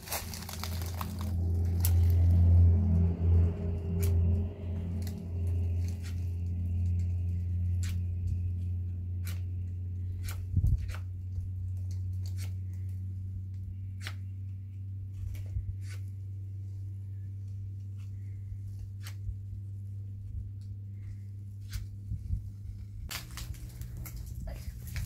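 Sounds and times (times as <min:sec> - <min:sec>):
wire and twigs clicking and rustling: 0:00.0 - 0:02.5, 0:23.1 - 0:25.0
steady low hum: 0:00.0 - 0:25.0.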